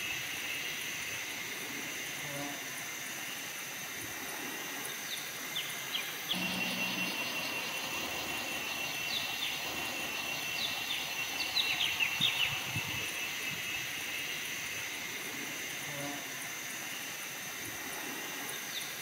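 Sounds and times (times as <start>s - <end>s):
insects droning: 0.0s - 19.0s
birds chirping: 5.1s - 14.6s.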